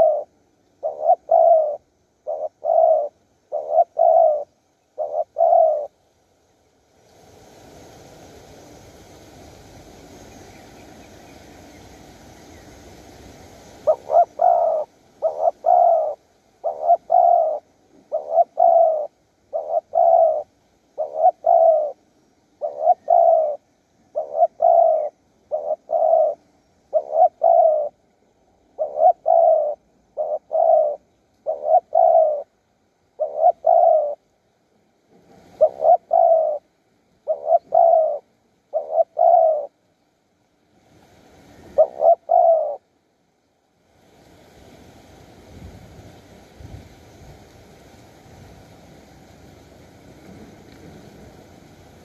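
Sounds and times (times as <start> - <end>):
dove cooing: 0.0 - 6.0, 13.7 - 22.0, 22.6 - 28.0, 28.7 - 34.3, 35.4 - 39.8, 41.6 - 42.9
faint steady hiss: 0.0 - 52.0.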